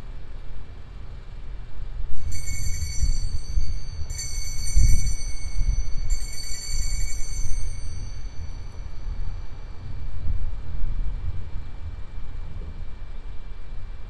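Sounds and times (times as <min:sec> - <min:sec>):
steady low rumble: 0:00.0 - 0:14.0
altar bells ringing: 0:02.2 - 0:09.8.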